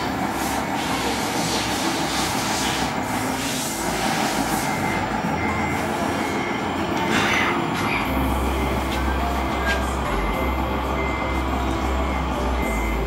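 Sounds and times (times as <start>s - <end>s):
model truck running: 0.0s - 13.0s.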